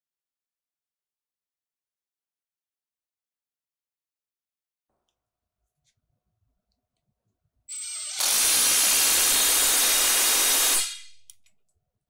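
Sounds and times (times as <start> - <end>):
impact driver whine: 7.7 - 11.3.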